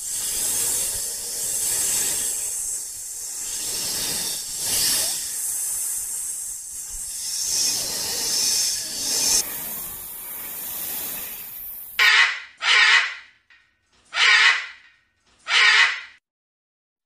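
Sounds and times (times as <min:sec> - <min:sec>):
snake hissing: 0:00.0 - 0:13.0.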